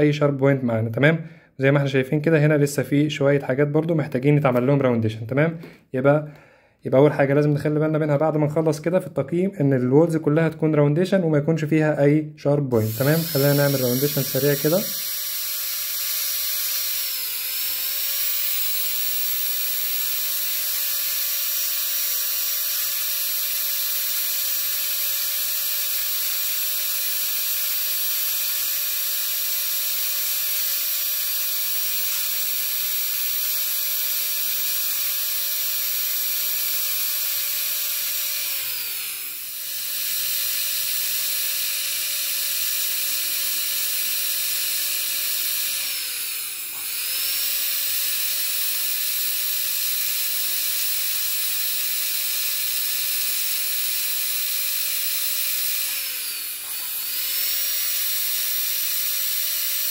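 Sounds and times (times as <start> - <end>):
dental drill whining: 12.7 - 59.9.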